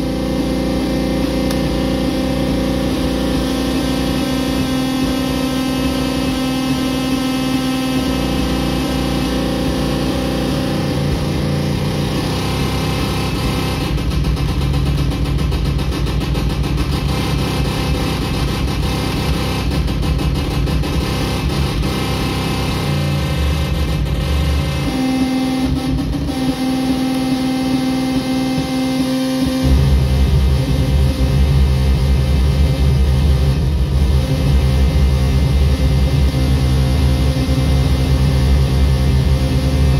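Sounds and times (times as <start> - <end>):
buzzing electronic drone: 0.0 - 39.9
fast stuttering pulse: 0.0 - 39.9.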